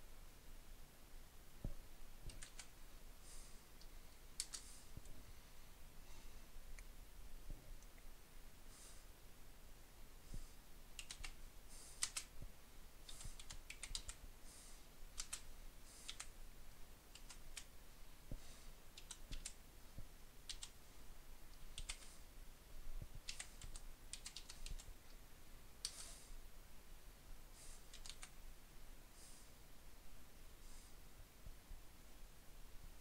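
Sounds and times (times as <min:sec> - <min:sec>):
computer keyboard typing: 0:02.3 - 0:02.7, 0:04.4 - 0:04.7, 0:11.0 - 0:11.4, 0:12.0 - 0:12.3, 0:13.1 - 0:14.2, 0:15.2 - 0:16.3, 0:17.1 - 0:17.7, 0:18.9 - 0:19.6, 0:20.4 - 0:20.8, 0:21.6 - 0:22.2, 0:23.2 - 0:24.9, 0:27.9 - 0:28.4.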